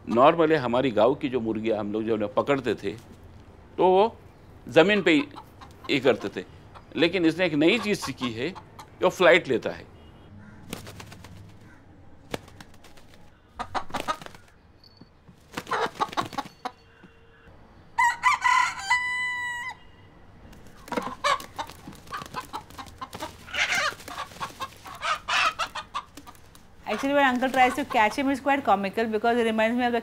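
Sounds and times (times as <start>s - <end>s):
chicken clucking: 4.8s - 7.0s, 7.6s - 9.0s, 13.6s - 14.4s, 15.6s - 16.8s, 20.8s - 28.2s
rooster crowing: 18.0s - 20.0s.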